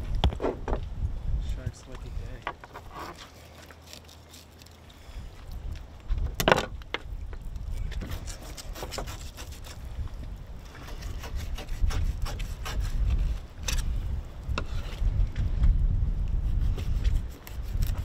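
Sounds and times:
knife cutting and scraping fish: 2.6s - 5.6s, 7.6s - 10.0s, 10.6s - 15.3s, 16.2s - 18.0s.

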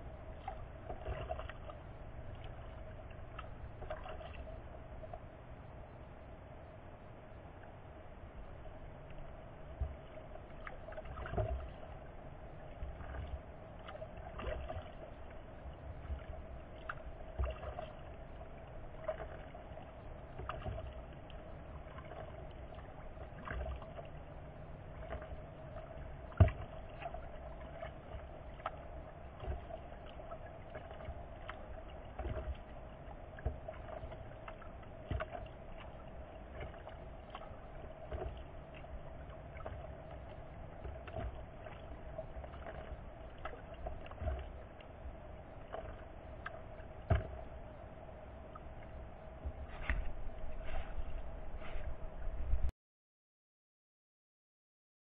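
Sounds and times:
paddle strokes splashing: 0.0s - 5.3s, 8.6s - 52.6s
faint hum: 0.0s - 52.7s
paddle knocking against hull: 26.3s - 27.2s, 29.4s - 29.8s, 32.2s - 32.6s, 33.4s - 38.6s, 42.4s - 44.6s, 45.7s - 47.5s.

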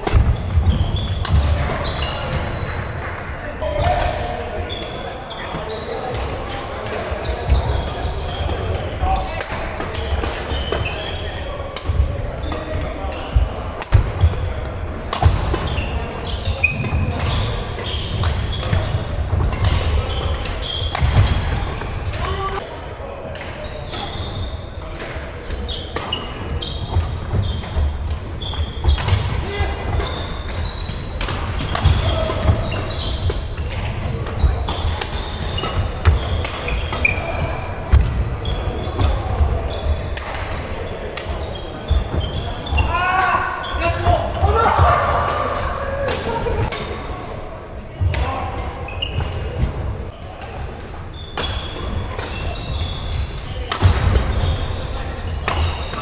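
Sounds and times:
shoe squeaks on court floor: 0.0s - 3.0s, 4.6s - 6.1s, 7.2s - 11.5s, 15.2s - 24.8s, 25.4s - 29.3s, 30.0s - 44.5s, 48.2s - 56.0s
rackets striking shuttlecocks: 0.0s - 4.2s, 4.8s - 24.2s, 24.8s - 42.5s, 50.4s - 56.0s.

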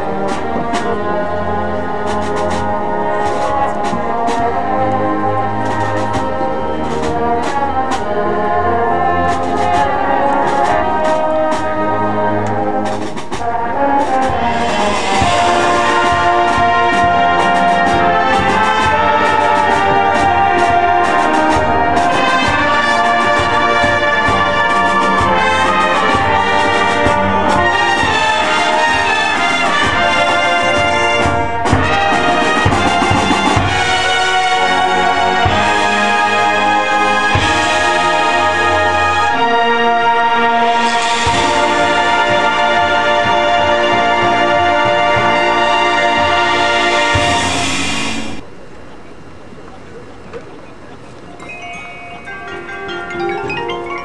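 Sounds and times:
brass section: 0.0s - 48.6s, 52.1s - 54.0s
marching band playing: 0.0s - 54.0s
drum hits: 12.8s - 34.6s, 41.1s - 42.5s, 47.0s - 48.4s.

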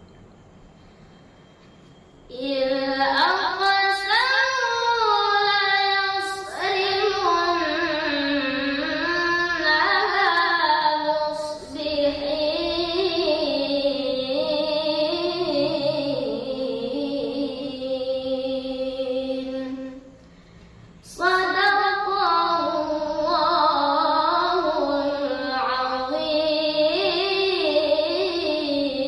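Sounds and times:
boy reciting melodically: 2.3s - 20.2s, 21.0s - 29.0s.

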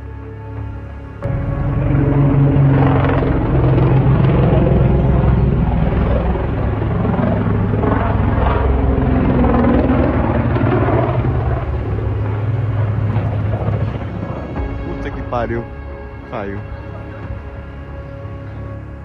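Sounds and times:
turboprop engines droning: 0.0s - 19.0s.

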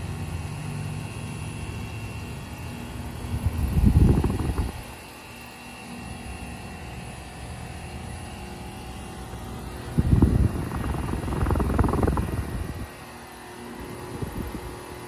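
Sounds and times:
heat pump humming with whine: 0.0s - 15.0s
loud low rumbles: 10.0s - 12.9s.

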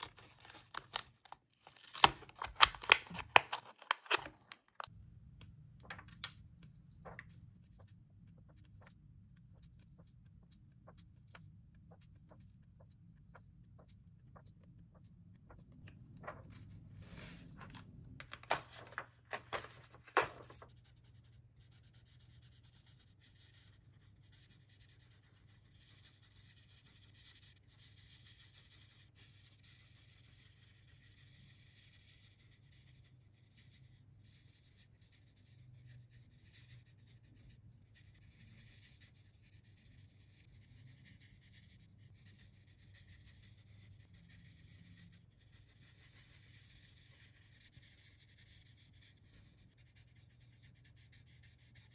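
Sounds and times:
book pages turning: 0.0s - 12.9s, 15.8s - 20.7s
marker rubbing on paper: 7.3s - 15.7s, 20.4s - 51.9s
sharp paper slaps: 18.2s - 20.6s.

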